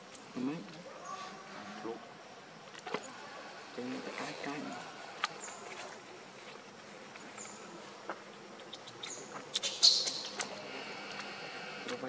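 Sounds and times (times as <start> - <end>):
insects buzzing: 0.0 - 12.0
steady hiss: 2.0 - 12.0
high falling chirps: 8.6 - 10.7.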